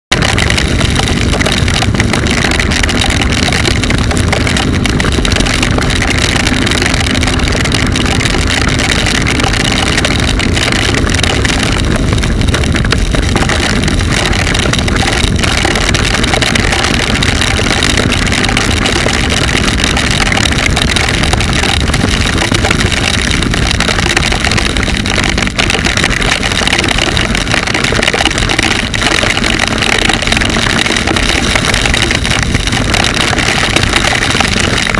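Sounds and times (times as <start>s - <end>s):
motorcycle engine running: 0.1s - 34.9s
wind and rain noise: 0.1s - 34.9s.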